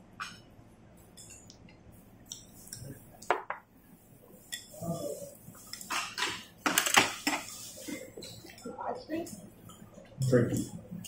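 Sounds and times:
chopsticks and spoons clinking on bowls: 0.3 - 1.5, 4.4 - 8.7.

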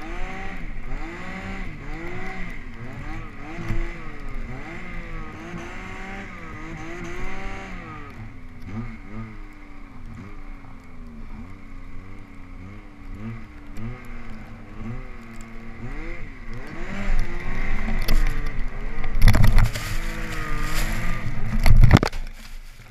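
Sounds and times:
snowmobile engine revving: 0.0 - 22.8
snow spraying: 19.6 - 21.5.

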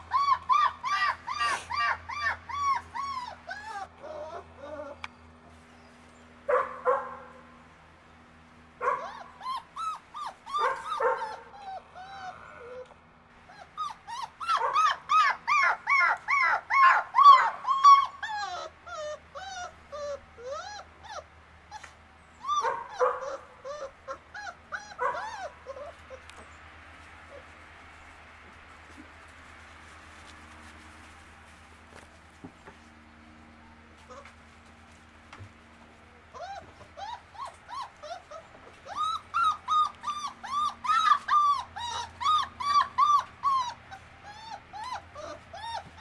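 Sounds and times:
puppies whining and yelping: 0.0 - 6.2, 8.8 - 27.6, 34.0 - 34.6, 36.2 - 46.0.

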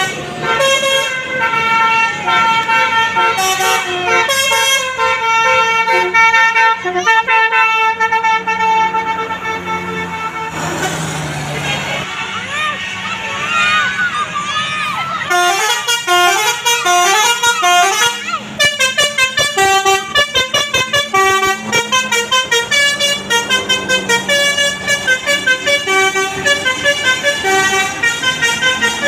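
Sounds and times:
bus multi-tone horn melody: 0.0 - 13.9, 14.7 - 29.0.

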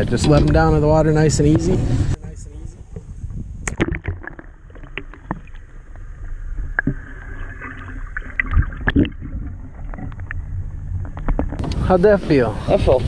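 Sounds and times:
low boat rumble: 0.0 - 13.0.

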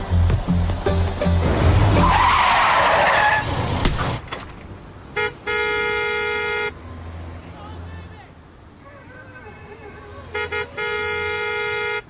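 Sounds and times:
car tyres skidding: 1.5 - 4.5
car horn: 5.1 - 6.8, 10.3 - 12.0.

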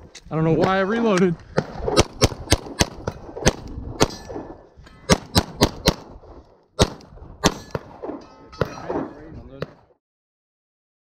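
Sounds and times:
pistol shots: 1.5 - 6.2, 6.8 - 9.9.

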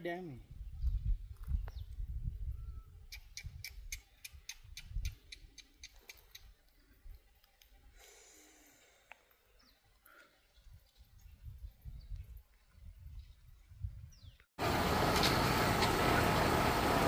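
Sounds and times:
sharp ticks: 3.1 - 6.5.

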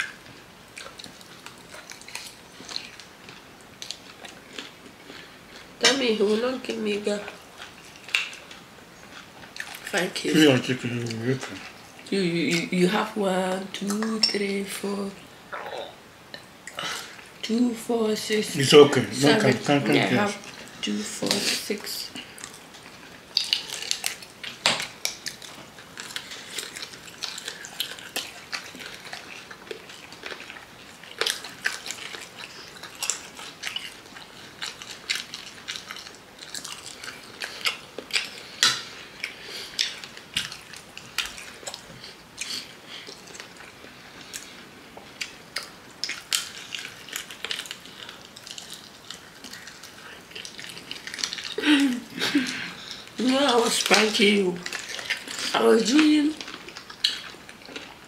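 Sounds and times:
people chewing food: 0.0 - 58.0.

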